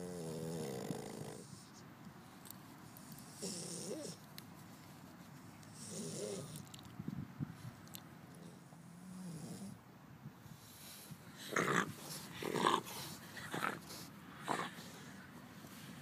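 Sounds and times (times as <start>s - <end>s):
dog snoring: 0.0s - 1.6s, 3.3s - 4.2s, 5.8s - 6.6s, 8.4s - 9.8s
dog breathing roughly: 10.5s - 15.2s.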